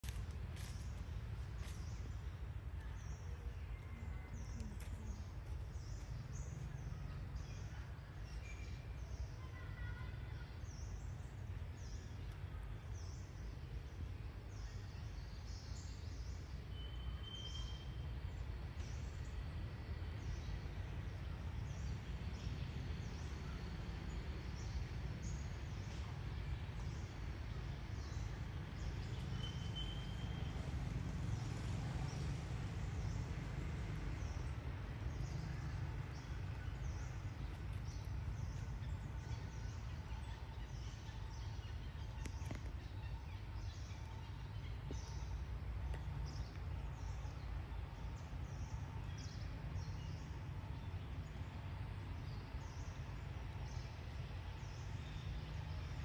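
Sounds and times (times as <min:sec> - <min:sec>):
steady low rumble: 0:18.0 - 0:56.0.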